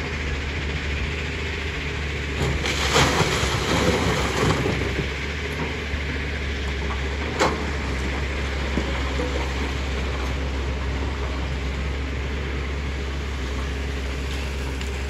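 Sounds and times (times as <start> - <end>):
excavator diesel engine running: 0.0 - 15.0.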